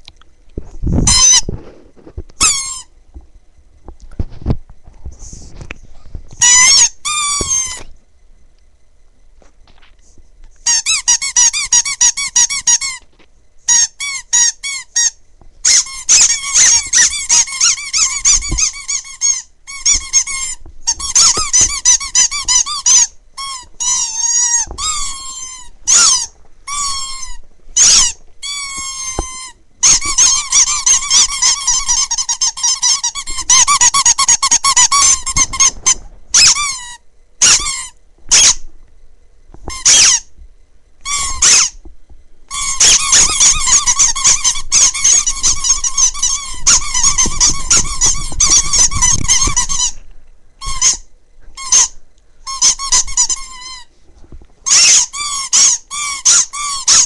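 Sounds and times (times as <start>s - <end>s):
rubber squeaky toy squeaking: 1.0s - 1.5s, 2.4s - 2.9s, 6.4s - 7.9s, 10.6s - 13.0s, 13.7s - 38.6s, 39.7s - 40.3s, 41.0s - 41.8s, 42.5s - 50.0s, 50.6s - 53.9s, 54.6s - 57.0s.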